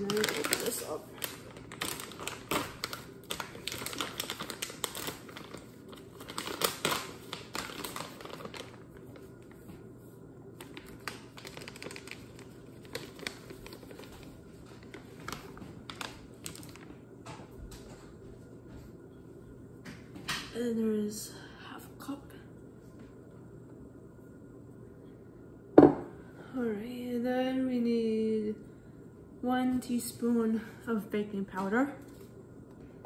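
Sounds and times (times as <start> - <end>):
plastic bag crinkling: 0.0 - 9.6, 10.6 - 17.0.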